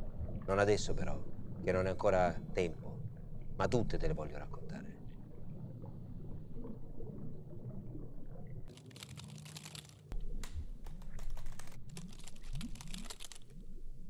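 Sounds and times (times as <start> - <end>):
low background rumble: 0.0 - 8.7
rapid typing-like clicking: 8.7 - 10.0, 10.9 - 13.5.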